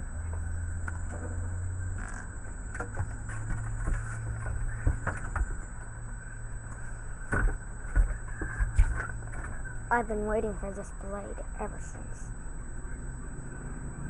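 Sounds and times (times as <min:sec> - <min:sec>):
faint high whine: 0:00.0 - 0:14.0
steady low hum: 0:00.0 - 0:14.0.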